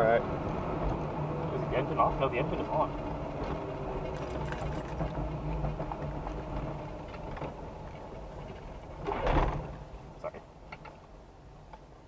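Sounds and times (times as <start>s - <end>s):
car engine low hum: 0.0s - 12.0s.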